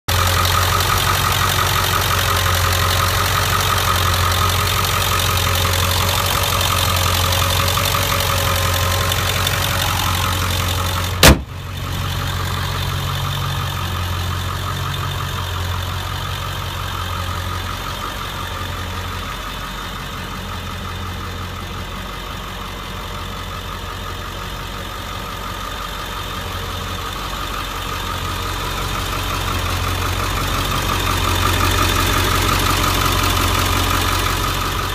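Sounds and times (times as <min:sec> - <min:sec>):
diesel engine idling: 0:00.1 - 0:34.9
hood shutting with bang: 0:11.1 - 0:11.7.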